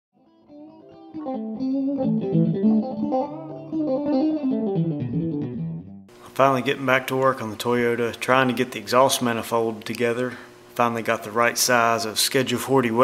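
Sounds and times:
guitar melody: 0:00.2 - 0:06.1.

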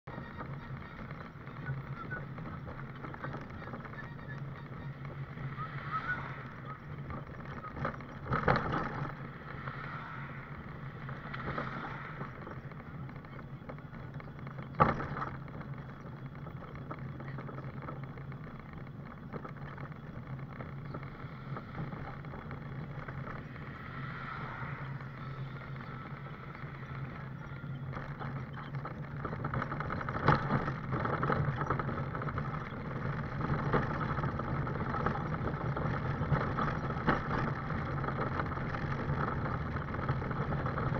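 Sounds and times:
scooter humming and rattling: 0:00.0 - 0:40.9
scooter knocking over bumps: 0:06.6 - 0:09.6, 0:11.0 - 0:23.6, 0:25.2 - 0:40.9.

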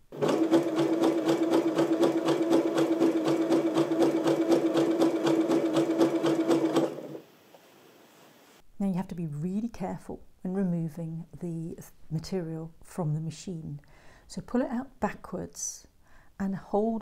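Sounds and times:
sewing machine stitching: 0:00.0 - 0:07.2.

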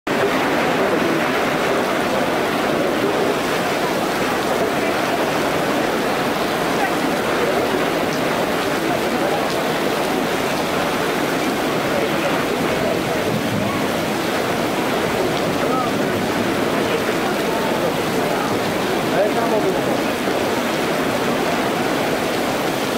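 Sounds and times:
heavy rain: 0:00.1 - 0:22.9
water gushing from drains: 0:00.1 - 0:22.9.

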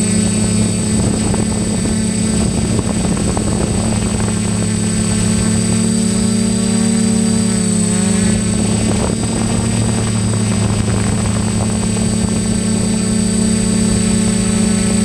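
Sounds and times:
drone propellers whirring: 0:00.0 - 0:15.0.

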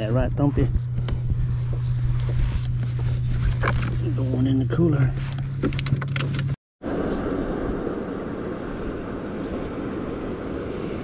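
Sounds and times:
steady low hum: 0:00.0 - 0:11.0
steady rushing noise: 0:06.8 - 0:11.0.

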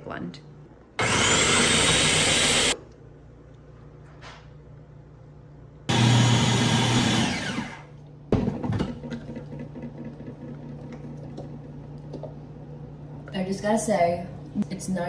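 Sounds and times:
food processor motor whirring: 0:01.0 - 0:02.8, 0:05.9 - 0:07.9.

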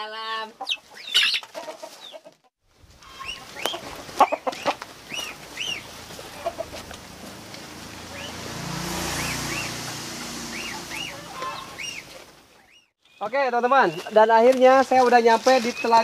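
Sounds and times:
chicken clucking and squawking: 0:00.4 - 0:07.3, 0:09.2 - 0:12.2.

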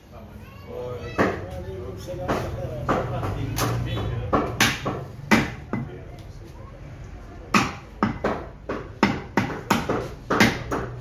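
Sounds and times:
cleaver chopping meat and bone: 0:02.1 - 0:06.0, 0:07.5 - 0:11.0.

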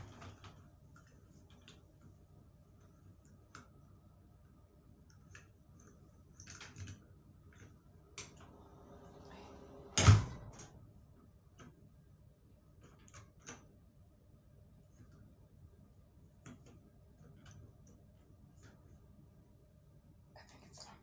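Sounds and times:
door thudding against frame: 0:09.9 - 0:10.7.

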